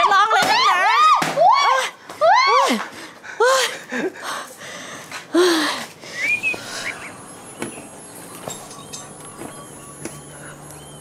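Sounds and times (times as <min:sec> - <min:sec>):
rising bird chirp: 0:06.0 - 0:11.0.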